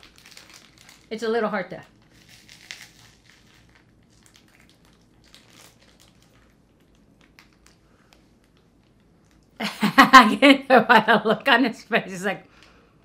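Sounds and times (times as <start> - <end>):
snack packaging crinkling: 0.0 - 9.6.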